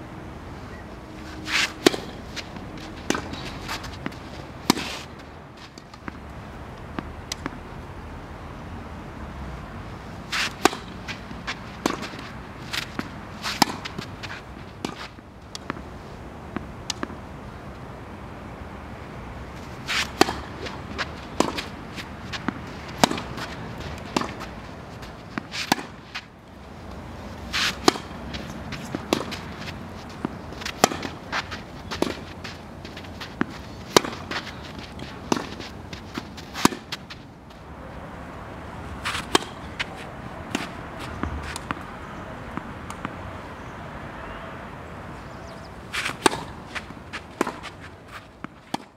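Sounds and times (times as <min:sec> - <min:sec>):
tennis racket striking ball: 0:01.4 - 0:06.1, 0:10.3 - 0:15.8, 0:19.8 - 0:26.3, 0:27.2 - 0:37.2, 0:39.0 - 0:41.8, 0:46.0 - 0:48.9
ball bouncing on court: 0:20.2 - 0:24.6.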